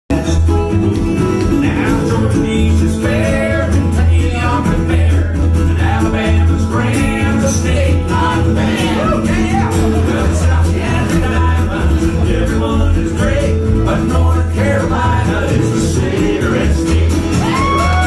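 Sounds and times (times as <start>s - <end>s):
bass line: 0.1s - 18.0s
resonator guitar lead lines: 0.1s - 18.0s
strummed acoustic guitar: 0.1s - 18.0s.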